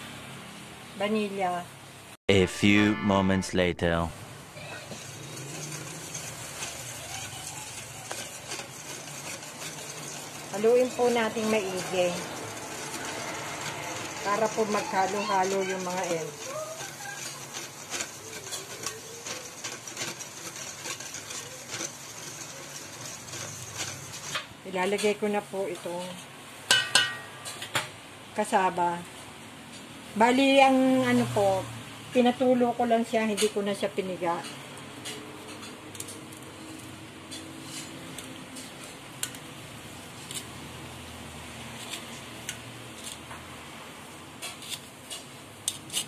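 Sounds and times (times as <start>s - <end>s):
whisk beating batter: 4.9s - 24.5s
metal spoon scraping strainer: 4.9s - 25.2s
whisk clicking against bowl: 5.3s - 24.3s.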